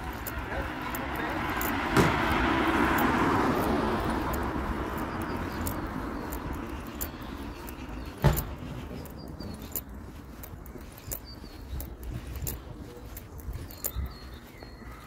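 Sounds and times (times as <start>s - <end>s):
car passing: 0.0s - 11.0s.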